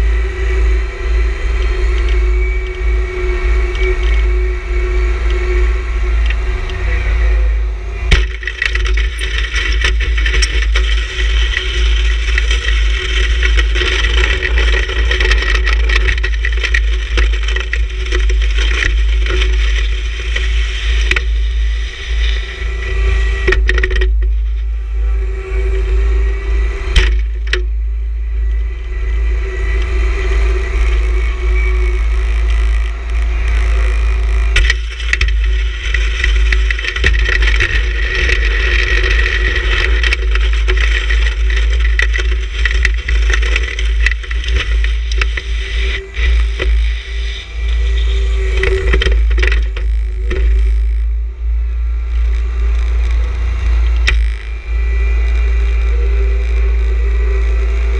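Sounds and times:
tractor diesel engine running: 0.0s - 57.9s
snow pusher scraping snow: 33.5s - 47.1s.

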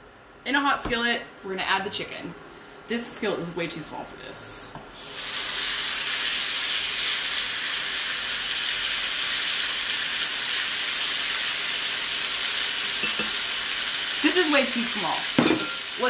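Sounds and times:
chicken sizzling in hot oil: 5.0s - 16.0s.

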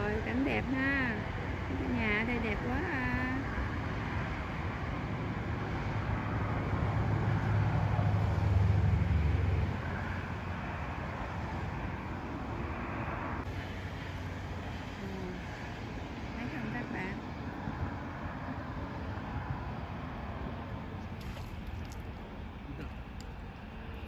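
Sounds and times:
car passing by: 3.2s - 22.3s.

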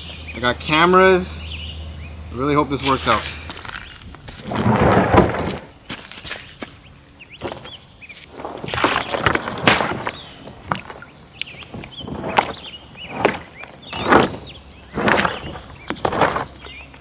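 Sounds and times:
paddle splashing through water: 8.3s - 16.8s.

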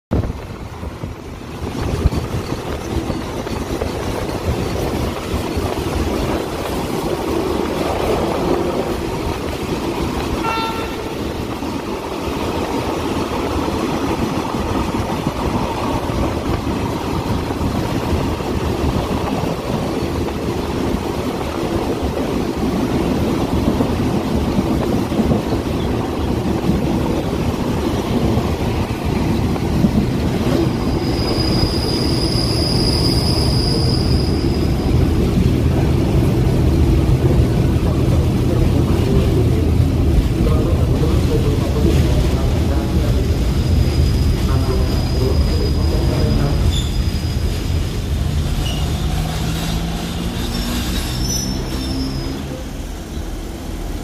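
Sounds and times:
train wheels rumbling: 0.1s - 54.0s
train horn toot: 10.4s - 11.4s.

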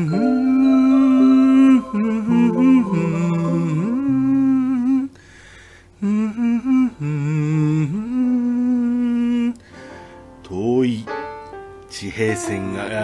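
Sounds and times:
person humming slow melody: 0.0s - 5.2s, 6.0s - 9.6s.

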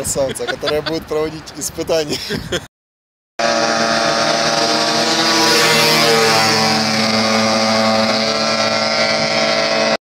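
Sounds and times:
quad bike engine drone: 3.4s - 10.0s.

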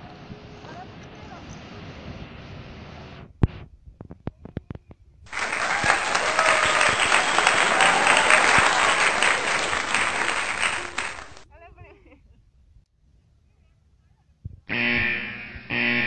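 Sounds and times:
loud applause: 5.3s - 11.4s.

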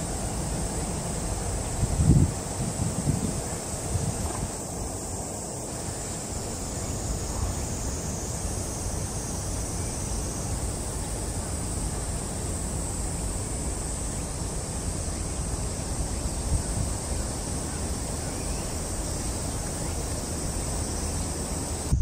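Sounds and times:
faint high hiss: 0.0s - 22.0s
wind buffeting microphone: 0.6s - 5.0s.

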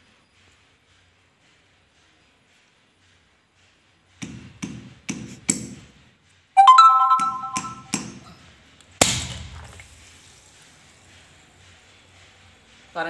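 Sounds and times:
clear ringing tone: 6.6s - 7.9s.

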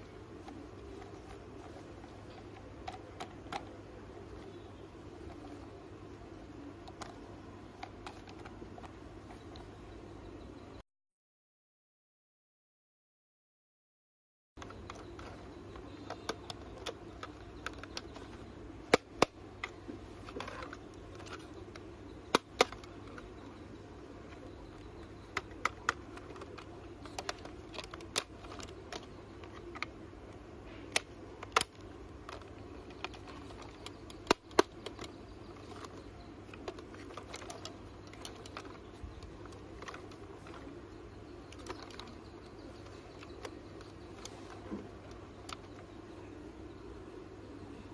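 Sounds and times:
low background noise: 0.0s - 10.8s, 14.6s - 47.9s
hard plastic toy clicks: 0.4s - 5.6s, 14.6s - 23.6s, 24.2s - 45.8s.

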